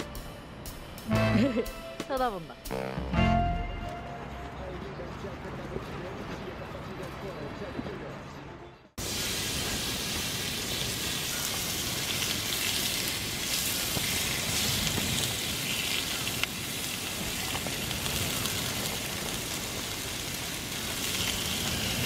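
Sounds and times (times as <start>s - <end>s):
meat sizzling on a grill pan: 9.0s - 22.0s.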